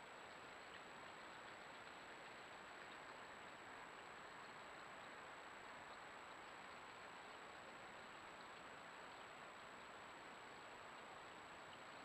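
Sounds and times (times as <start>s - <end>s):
recording hiss: 0.0s - 12.0s.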